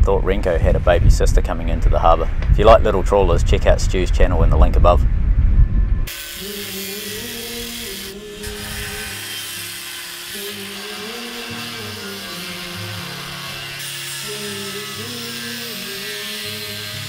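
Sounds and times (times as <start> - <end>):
slow background music: 5.0 - 17.0.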